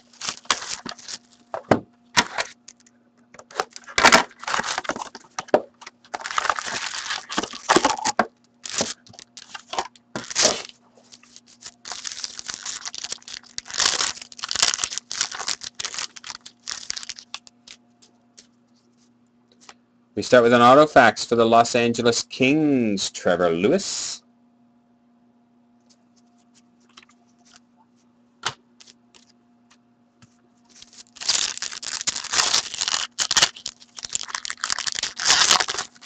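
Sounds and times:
foil and plastic crinkling and ripping: 0.0s - 1.6s, 2.2s - 2.6s, 3.4s - 17.8s, 30.7s - 36.0s.

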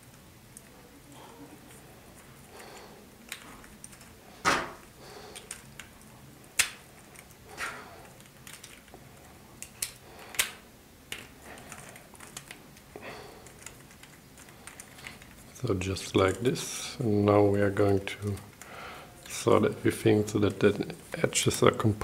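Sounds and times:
plastic pieces clicking: 3.2s - 4.2s, 5.3s - 9.0s, 9.6s - 16.4s.

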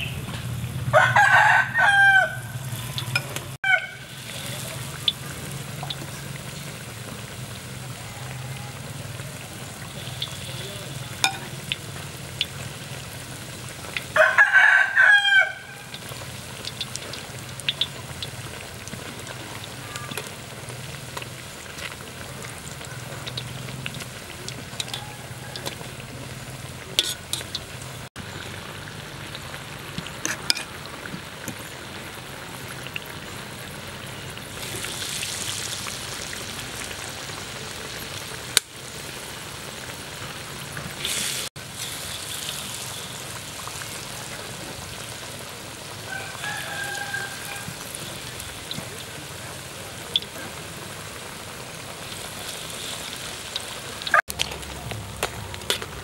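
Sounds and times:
deep-frying sizzle: 0.0s - 56.0s
rooster crowing: 0.9s - 2.7s, 3.6s - 4.1s, 14.1s - 15.9s, 24.7s - 26.0s, 46.0s - 48.0s
metal tongs clicking on pan: 23.2s - 25.8s, 27.0s - 27.7s.

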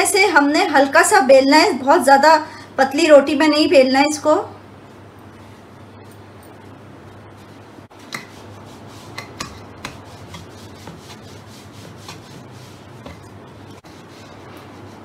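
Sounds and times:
rolling pin rolling dough: 7.4s - 15.0s
rolling pin knocking board: 9.1s - 13.3s.

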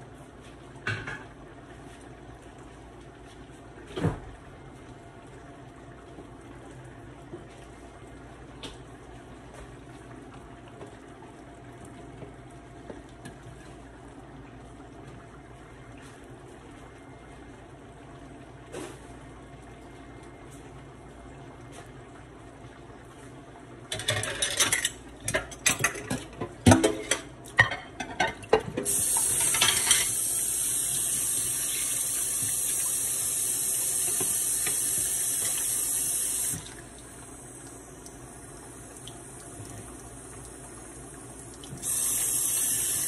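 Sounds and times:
kitchen tap running: 23.9s - 43.0s.

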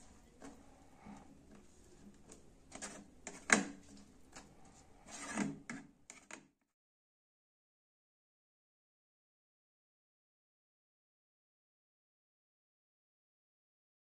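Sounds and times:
spatula scraping and knocking wok: 2.7s - 6.4s.

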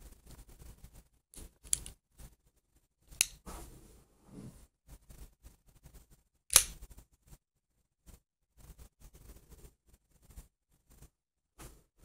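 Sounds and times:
switchblade metal clicks: 6.5s - 6.8s
switchblade snapping open: 6.5s - 6.8s.

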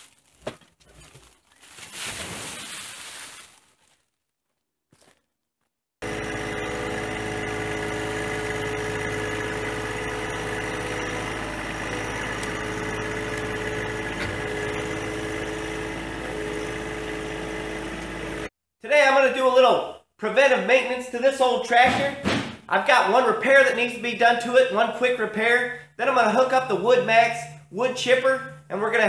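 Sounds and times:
wood chips pouring: 0.0s - 4.0s
tractor diesel engine running: 6.0s - 18.5s.

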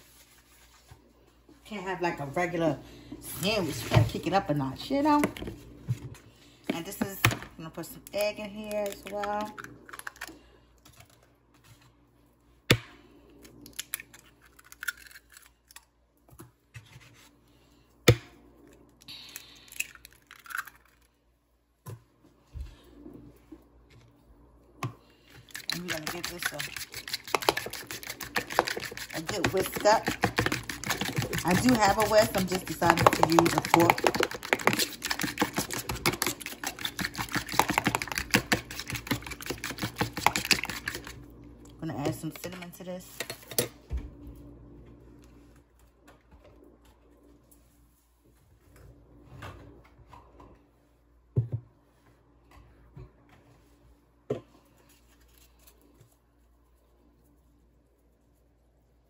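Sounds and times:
eggs cracking: 8.8s - 10.4s, 13.6s - 15.9s, 19.2s - 21.2s, 25.4s - 41.2s.

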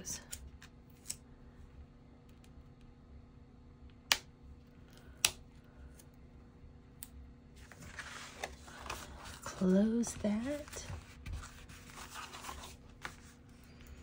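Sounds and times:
cardstock page rustling: 7.6s - 13.7s.

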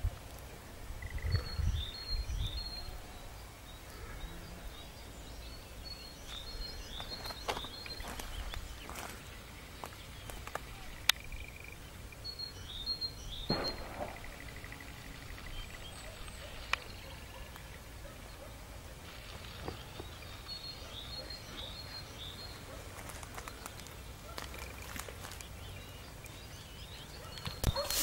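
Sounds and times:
low wind rumble: 0.0s - 12.3s
birds chirping: 0.0s - 28.0s.

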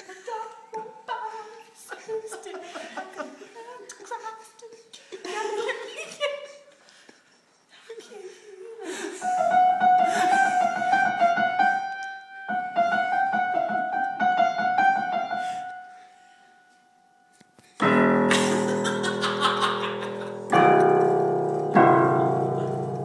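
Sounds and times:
grand piano played rapidly: 9.4s - 15.6s, 17.8s - 23.0s.

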